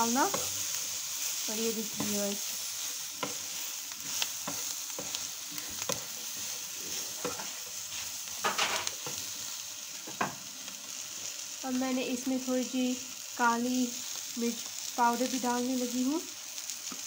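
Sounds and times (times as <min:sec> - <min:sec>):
spatula scraping a pan: 0:00.0 - 0:09.4
vegetables sizzling in a pan: 0:00.0 - 0:17.0.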